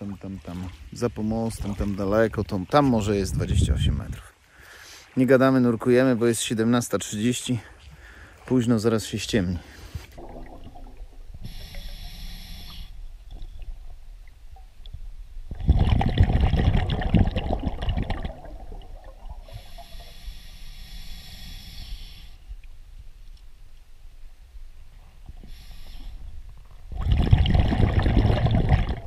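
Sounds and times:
rush of exhaled bubbles: 0:10.0 - 0:11.9, 0:15.5 - 0:20.2, 0:26.9 - 0:29.0
hissing inhale through regulator: 0:11.3 - 0:13.2, 0:19.4 - 0:22.6, 0:25.4 - 0:26.5.

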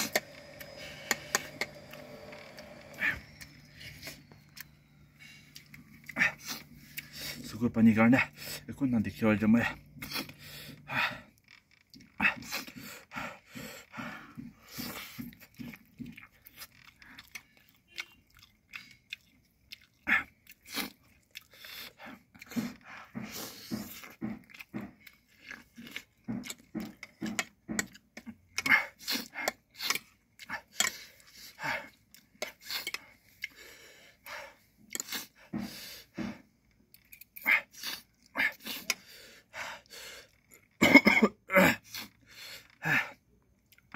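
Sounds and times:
person chewing and biting: 0:00.0 - 0:07.2, 0:14.8 - 0:33.6, 0:34.8 - 0:35.4.

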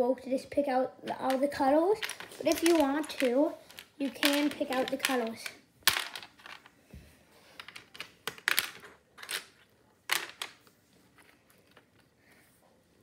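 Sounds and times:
plastic bricks clicking and clattering: 0:01.1 - 0:06.7, 0:07.6 - 0:12.1.

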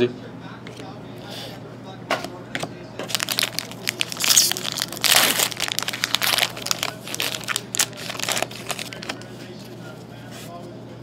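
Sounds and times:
wrapper crinkling and rustling: 0:03.0 - 0:09.3
wrapper ripping: 0:03.1 - 0:09.2.

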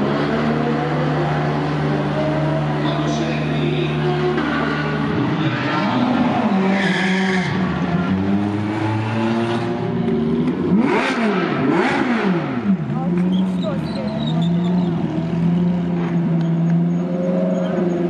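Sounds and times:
race car engines revving: 0:00.0 - 0:18.0.

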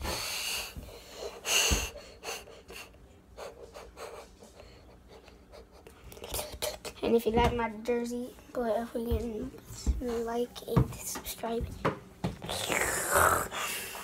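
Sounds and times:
heavy breathing: 0:00.0 - 0:06.7, 0:12.6 - 0:14.0.

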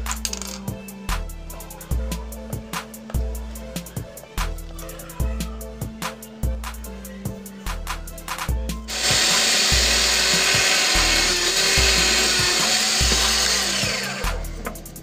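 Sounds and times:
background music with beat: 0:00.0 - 0:15.0
drill press drilling wood: 0:08.9 - 0:14.7.

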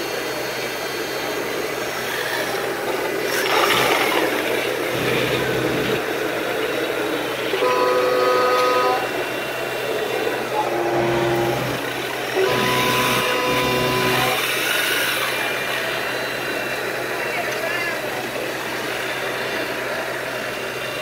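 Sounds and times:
electronic engine drone: 0:00.0 - 0:21.0
horn-like tones: 0:07.5 - 0:09.5, 0:10.4 - 0:14.5.

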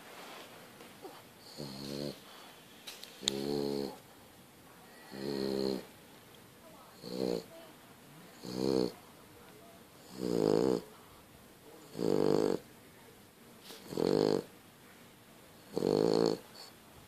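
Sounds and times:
dog snoring loudly: 0:01.4 - 0:02.2, 0:03.2 - 0:04.0, 0:05.1 - 0:05.9, 0:07.0 - 0:07.5, 0:08.4 - 0:09.0, 0:10.0 - 0:10.9, 0:11.8 - 0:12.6, 0:13.8 - 0:14.5, 0:15.7 - 0:16.7.

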